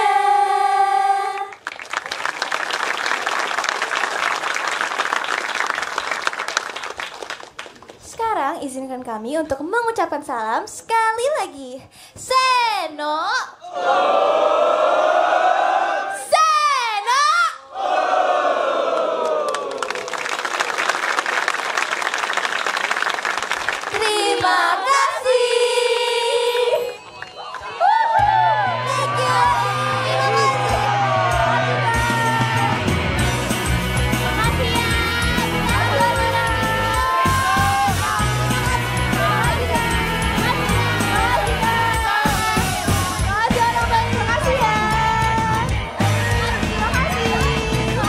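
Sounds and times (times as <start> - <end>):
women's voices singing in unison: 0.0 - 1.6, 24.0 - 27.0
audience applauding: 1.4 - 8.0, 19.0 - 24.9, 26.7 - 43.2
group of voices shouting in unison: 13.6 - 16.3, 17.7 - 19.7, 27.8 - 32.9, 35.0 - 43.4.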